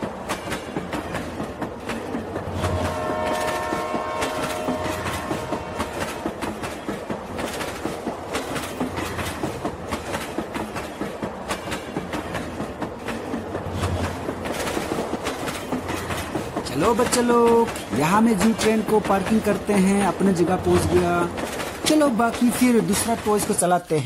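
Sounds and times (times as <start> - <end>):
train wheels clacking on rails: 0.0 - 23.9
train horn: 2.6 - 6.4.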